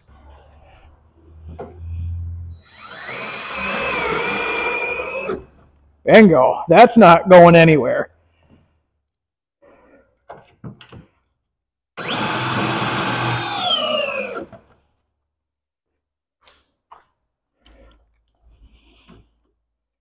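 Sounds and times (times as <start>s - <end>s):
power drill whining: 2.5s - 5.6s, 12.0s - 14.7s.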